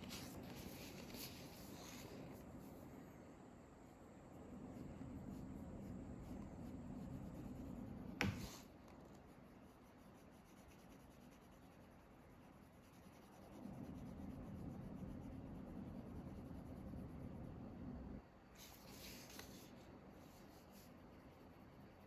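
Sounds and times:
pen scratching on paper: 0:00.0 - 0:02.7, 0:04.7 - 0:17.2.

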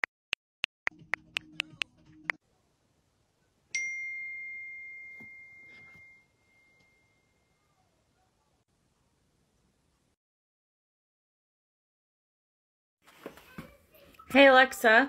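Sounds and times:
bell-like ding: 0:03.8 - 0:07.6.

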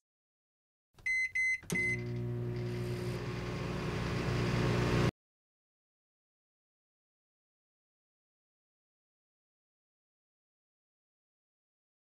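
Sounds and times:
microwave keypad beeping: 0:01.0 - 0:02.6
microwave oven humming: 0:01.6 - 0:05.1.

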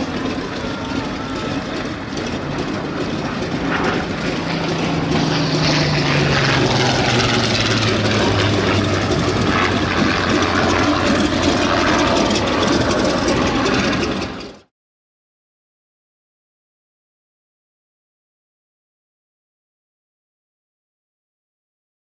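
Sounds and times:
propeller aircraft engine drone: 0:00.0 - 0:14.7.

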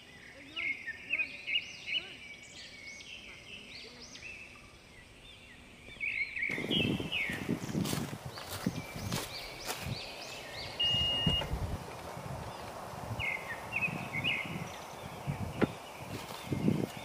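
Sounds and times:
birds chirping: 0:00.0 - 0:17.0
footsteps on gravel: 0:06.5 - 0:13.1, 0:14.5 - 0:17.0
short beep: 0:10.8 - 0:11.5.

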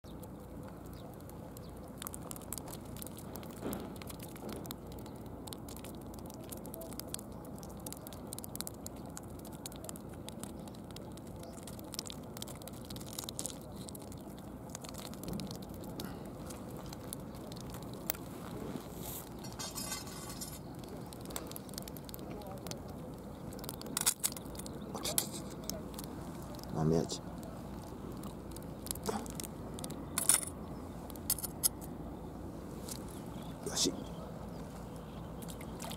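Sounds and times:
low background noise: 0:00.1 - 0:35.9
fish flopping on concrete: 0:18.9 - 0:26.6.

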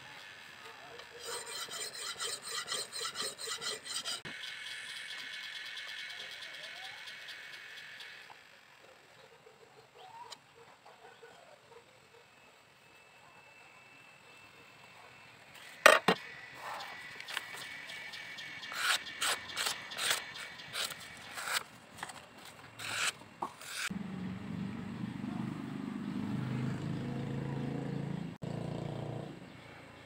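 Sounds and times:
scraping on sharpening stone: 0:01.2 - 0:04.3, 0:18.6 - 0:21.6, 0:22.8 - 0:23.9.

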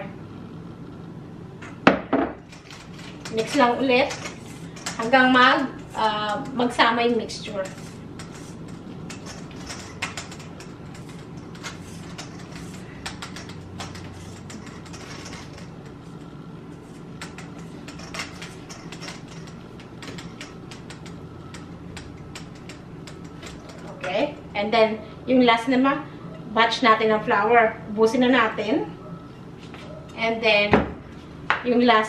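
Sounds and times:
whisk scraping metal bowl: 0:02.6 - 0:16.2.

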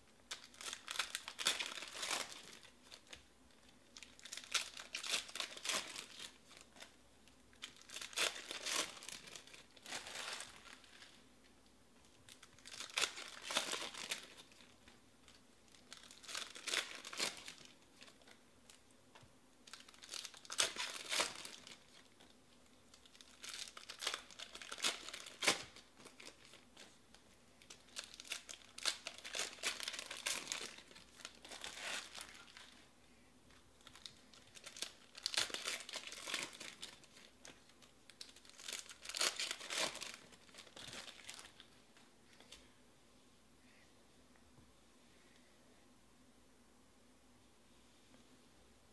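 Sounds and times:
foil wrappers tearing and crinkling: 0:00.3 - 0:03.2, 0:04.0 - 0:06.9, 0:07.5 - 0:11.1, 0:12.3 - 0:14.6, 0:15.8 - 0:18.3, 0:19.7 - 0:22.0, 0:23.0 - 0:26.6, 0:27.6 - 0:32.8, 0:33.8 - 0:41.6.

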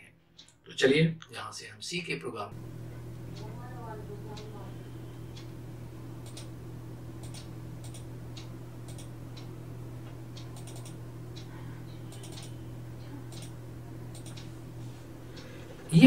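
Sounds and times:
steady low hum: 0:00.0 - 0:16.0
keyboard keystrokes: 0:07.2 - 0:08.0, 0:08.9 - 0:09.1, 0:10.6 - 0:11.0, 0:13.3 - 0:14.4.

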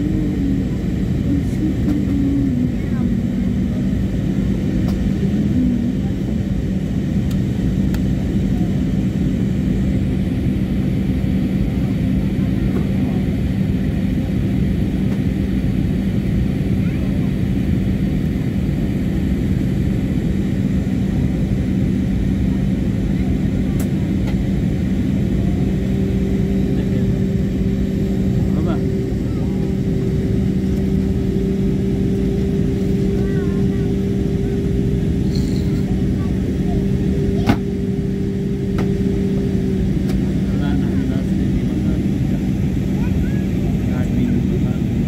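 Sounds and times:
low hum: 0:00.0 - 0:11.9, 0:23.1 - 0:45.0
jet airliner cabin noise: 0:00.0 - 0:45.0.

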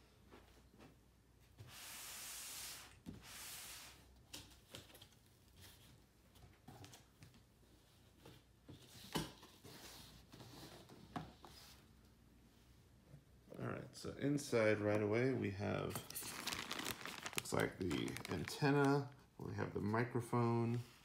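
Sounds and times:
cardboard tearing: 0:16.2 - 0:19.0.

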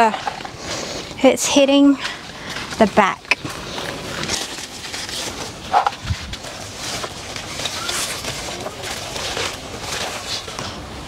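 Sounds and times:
plant leaves rustling: 0:01.6 - 0:10.8.

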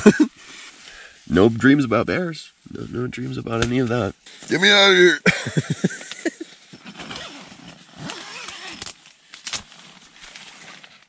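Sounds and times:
nylon fabric rustling: 0:06.4 - 0:11.0
tent zipper pulled open: 0:06.6 - 0:11.0.

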